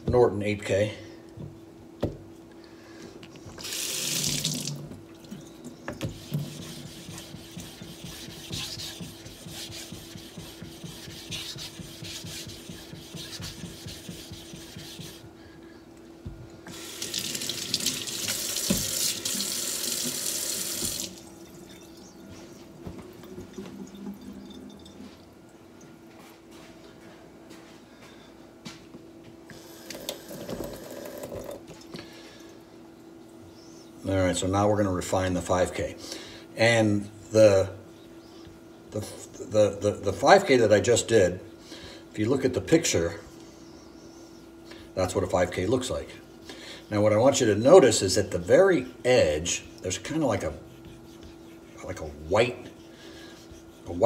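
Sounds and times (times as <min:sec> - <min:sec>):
tap running water: 0:03.6 - 0:11.0, 0:16.7 - 0:21.8, 0:22.8 - 0:25.2, 0:29.8 - 0:32.0.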